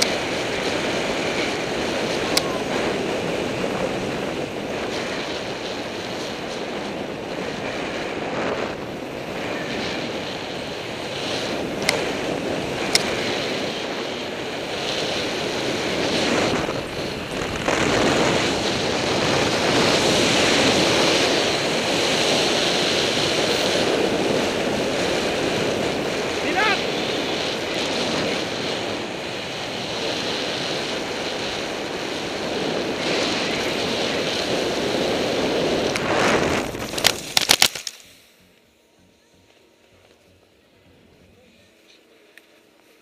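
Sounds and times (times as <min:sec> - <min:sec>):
snow hissing under sliding rider: 0:00.0 - 0:38.5
wind rushing over microphone: 0:00.0 - 0:41.8.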